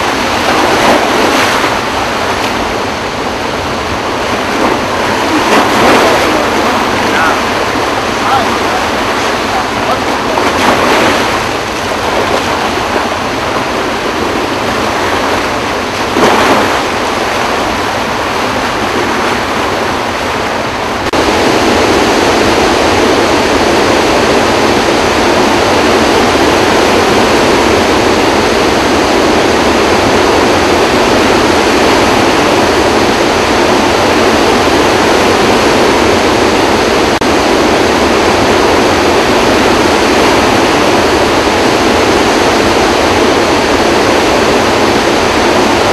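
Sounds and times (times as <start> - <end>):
dam spillway water rushing: 0.0 - 45.9.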